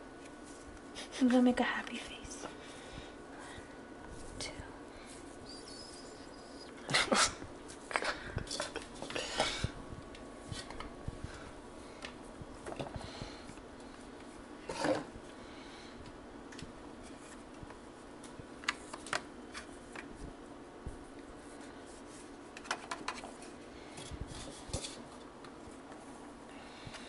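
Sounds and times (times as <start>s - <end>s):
hands rubbing dough: 19.6s - 26.5s.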